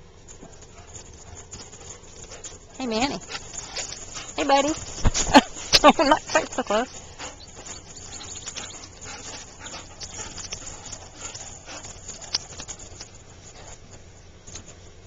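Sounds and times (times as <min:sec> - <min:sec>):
paws scuffling on gravel: 0:00.0 - 0:15.0
dogs growling and snapping: 0:00.3 - 0:06.6, 0:07.2 - 0:14.0.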